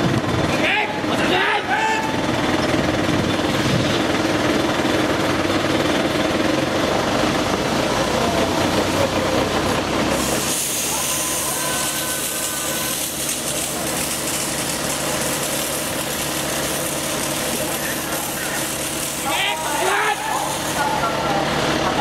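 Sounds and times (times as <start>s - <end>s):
engine and pump rattling: 0.0s - 22.0s
hose water spraying hiss: 8.6s - 21.1s.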